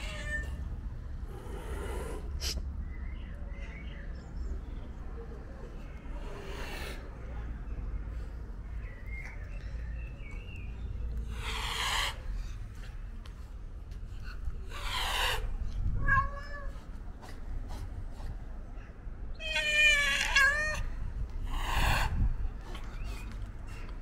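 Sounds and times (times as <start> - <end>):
cat meowing: 0.0 - 0.6, 14.8 - 16.8, 19.4 - 20.9
cat hissing: 11.3 - 12.3, 14.6 - 18.4.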